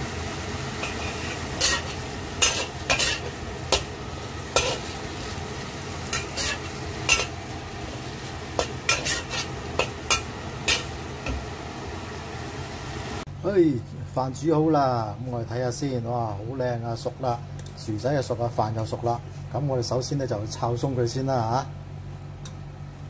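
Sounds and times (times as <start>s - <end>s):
shrimp sizzling in hot oil: 0.0s - 13.2s
metal spatula scraping a wok: 0.8s - 5.4s, 6.0s - 11.0s.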